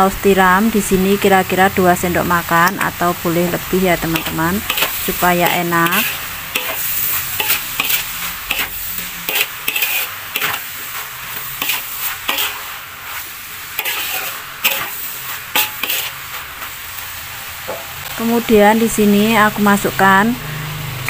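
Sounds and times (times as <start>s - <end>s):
food sizzling: 0.0s - 21.0s
metal spatula scraping wok: 4.0s - 17.0s.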